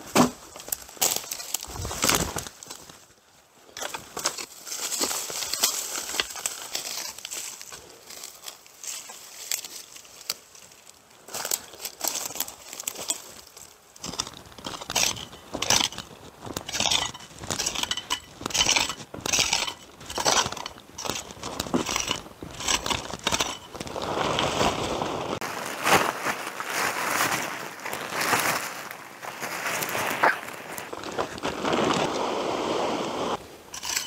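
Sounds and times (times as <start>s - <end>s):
steady rustle: 0.4s - 34.0s
digging tool scraping dry dirt: 3.7s - 10.4s, 11.3s - 34.0s.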